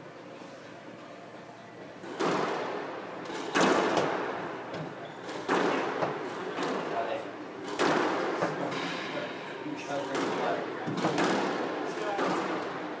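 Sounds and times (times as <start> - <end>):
squash ball echoing thwacks: 2.1 - 4.3, 5.3 - 7.0, 7.6 - 8.7, 10.1 - 12.8.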